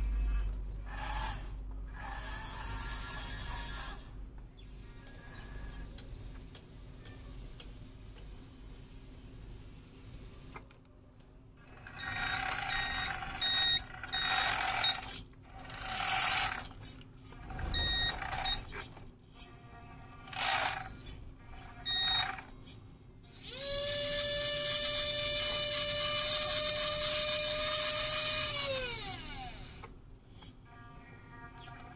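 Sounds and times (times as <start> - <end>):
backup beeper beeping: 12.0 - 15.0, 17.6 - 18.7, 21.9 - 22.3
electric motor whine: 23.3 - 29.9.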